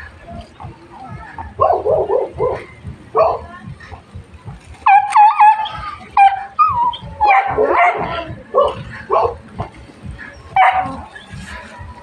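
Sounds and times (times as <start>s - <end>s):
dogs yelping barks: 1.5s - 3.4s, 4.8s - 9.7s, 10.3s - 11.4s.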